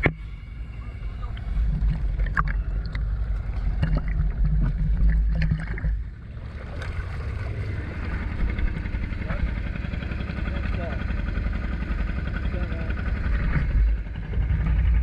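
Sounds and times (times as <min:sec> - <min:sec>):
boat engine rumbling underwater: 0:00.0 - 0:15.0
boat engine running with hiss: 0:00.0 - 0:15.0
bubbling water: 0:01.2 - 0:09.2.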